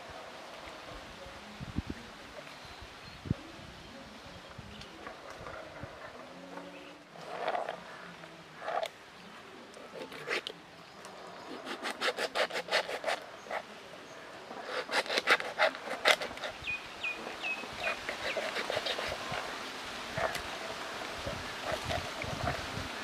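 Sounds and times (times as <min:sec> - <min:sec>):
knife sawing through chicken: 0:11.5 - 0:13.6, 0:14.6 - 0:16.6, 0:17.7 - 0:19.5.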